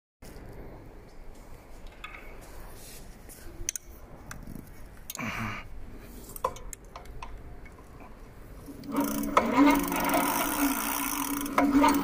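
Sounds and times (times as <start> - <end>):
rustle: 0.2 - 5.1
bike chain clicks and rattles: 6.3 - 12.0.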